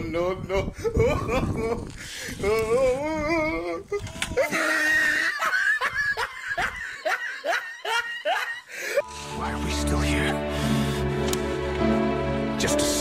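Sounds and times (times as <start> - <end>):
people laughing: 4.4 - 9.0.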